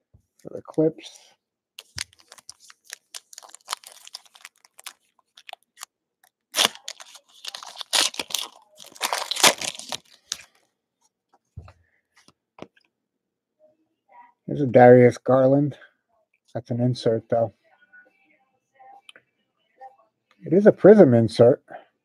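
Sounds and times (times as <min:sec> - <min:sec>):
wrapper crinkling and tearing: 0:01.8 - 0:10.6.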